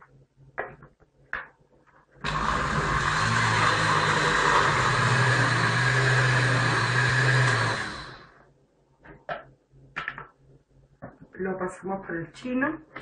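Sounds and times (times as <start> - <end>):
blender running: 2.2 - 8.4.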